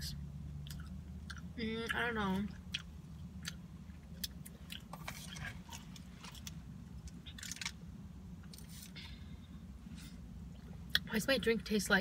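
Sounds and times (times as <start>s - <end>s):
steady low hum: 0.0s - 12.0s
wet chewing clicks and smacks: 0.6s - 1.6s, 2.4s - 7.8s.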